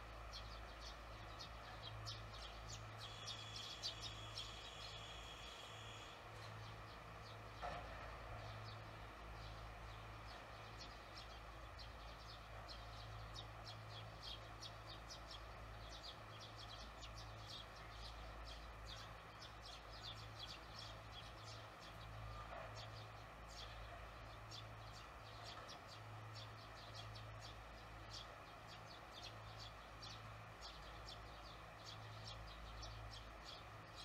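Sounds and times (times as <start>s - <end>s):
swallows twittering: 0.3s - 6.2s.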